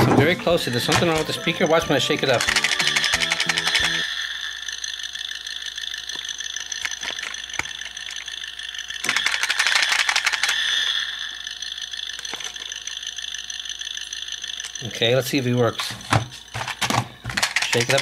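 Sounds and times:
high-pitched electronic buzz: 1.4 - 14.6
toy car plastic ratcheting rattle: 2.3 - 4.1, 4.7 - 15.8, 16.5 - 18.0.

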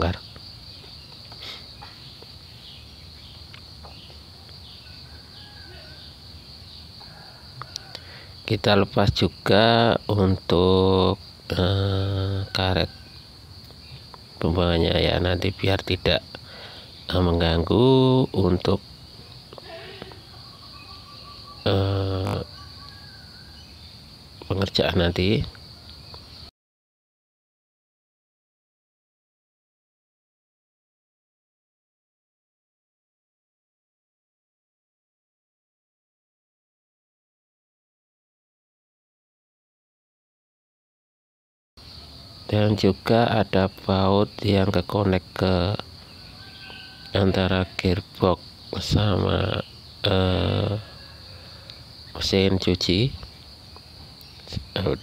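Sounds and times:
high-pitched insect buzz: 9.2 - 26.5, 41.8 - 55.0.

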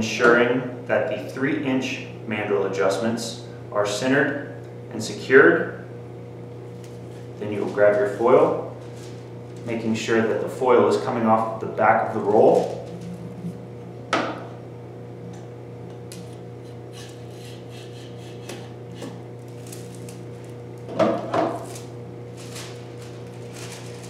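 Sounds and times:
steady low hum: 0.0 - 24.0
knocks and rubbing of foil roll: 21.4 - 24.0.

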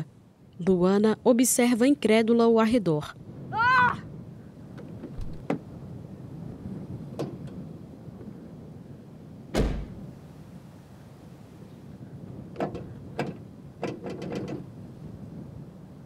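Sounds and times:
car door slamming: 5.1 - 5.6, 9.6 - 10.0.

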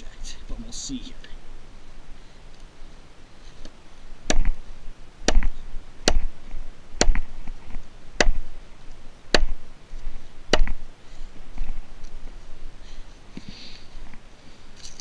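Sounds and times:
hatchet striking wood: 4.3 - 4.6, 5.2 - 6.3, 7.0 - 7.3, 8.2 - 8.4, 9.3 - 9.6, 10.5 - 10.8.

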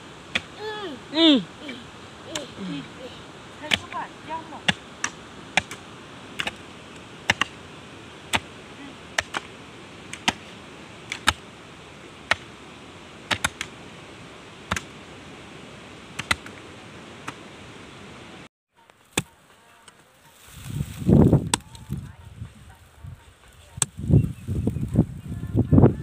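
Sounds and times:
steady background hiss: 0.0 - 26.0
hoe chopping into stony soil: 3.6 - 5.8, 7.3 - 7.6, 10.1 - 10.5, 13.3 - 13.7.

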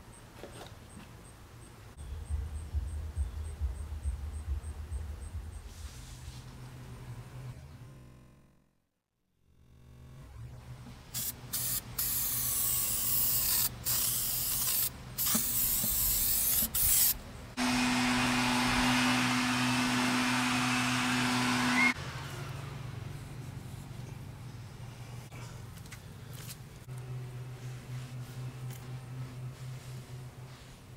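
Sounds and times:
faint low hum: 0.0 - 8.6
aerosol can spraying: 11.1 - 17.2.

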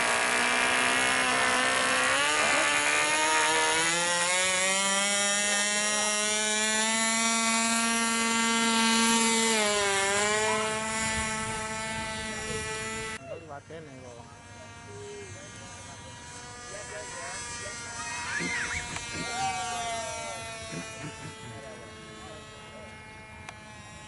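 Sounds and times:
model airplane engine buzzing: 0.0 - 24.0.

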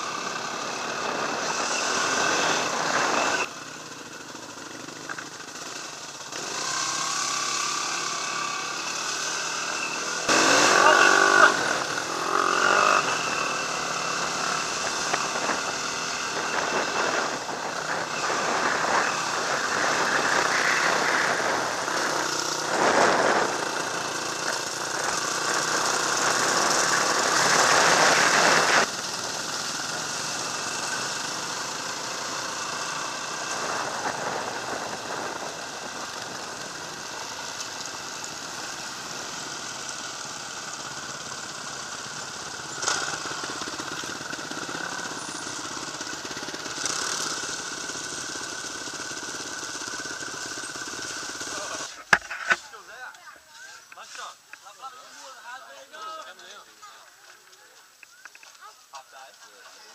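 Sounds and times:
dirt bike engine running: 0.0 - 52.7
wind rush on microphone: 33.6 - 36.8.

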